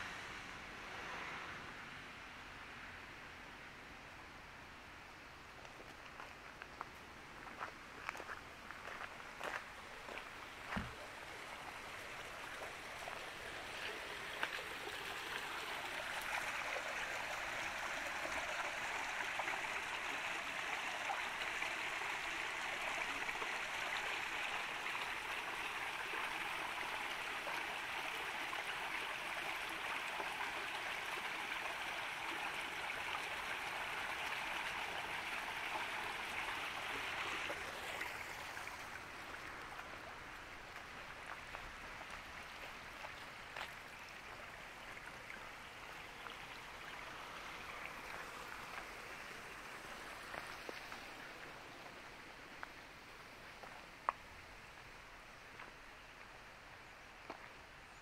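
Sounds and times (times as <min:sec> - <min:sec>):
running water rushing: 0:08.8 - 0:56.5.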